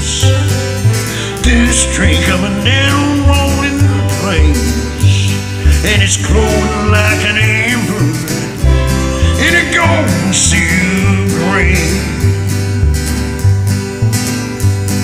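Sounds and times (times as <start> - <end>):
bass line: 0.0 - 15.0
bending melody line: 0.0 - 15.0
strummed acoustic guitar: 0.0 - 15.0.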